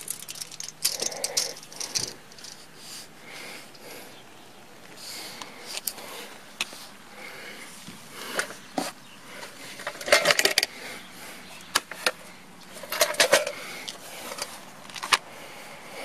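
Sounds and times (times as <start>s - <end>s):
metal hardware clattering on wood: 0.0s - 2.6s, 9.8s - 10.7s, 12.8s - 13.6s.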